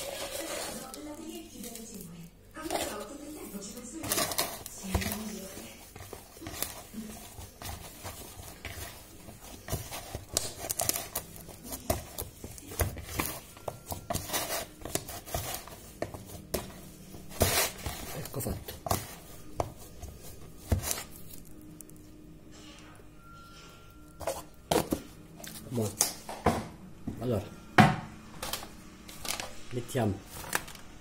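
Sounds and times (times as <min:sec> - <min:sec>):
hand squishing dough: 0:00.0 - 0:22.0.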